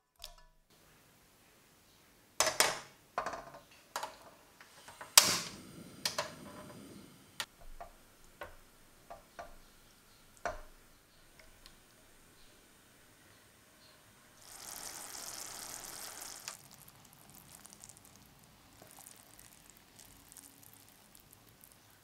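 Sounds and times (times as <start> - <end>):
gas burner hiss: 4.6 - 8.8, 14.4 - 16.6.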